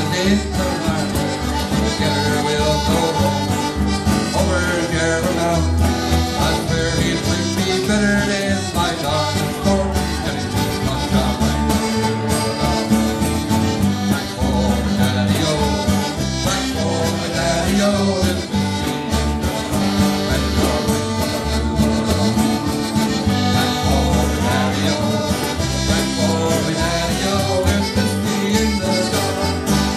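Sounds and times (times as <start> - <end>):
button accordion: 0.0 - 29.9
cajon drumming: 0.0 - 29.9
electric bass: 0.0 - 29.9
man singing: 0.0 - 29.9
strummed acoustic guitar: 0.0 - 29.9.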